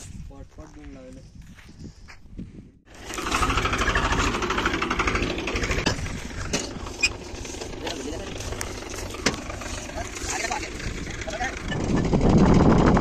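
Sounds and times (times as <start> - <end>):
tractor diesel engine chugging: 2.9 - 13.0.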